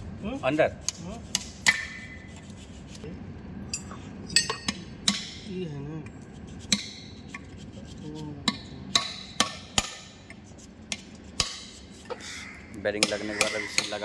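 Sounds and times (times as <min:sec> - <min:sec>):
hammer tapping steel: 0:08.4 - 0:10.2.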